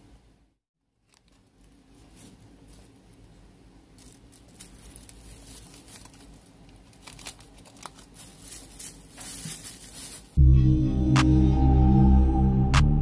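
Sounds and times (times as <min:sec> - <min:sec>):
plastic bag rustling: 0:01.0 - 0:10.4
foil sachet crinkling: 0:03.9 - 0:10.4
loud music: 0:10.4 - 0:13.0.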